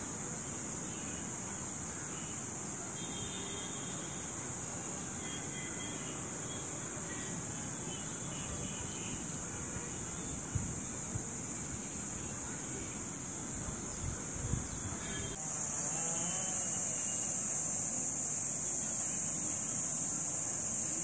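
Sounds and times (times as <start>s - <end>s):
high-pitched insect chorus: 0.0s - 21.0s
wind rumble on microphone: 10.2s - 12.6s, 13.5s - 15.3s
high-pitched insect drone: 14.8s - 21.0s.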